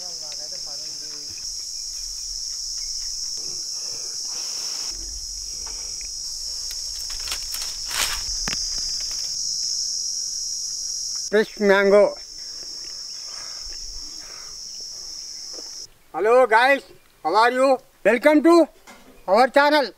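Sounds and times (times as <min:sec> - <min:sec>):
tree leaves rustling: 0:00.0 - 0:18.1
insects chirring: 0:00.0 - 0:18.4
mangoes thudding on ground: 0:06.7 - 0:09.5.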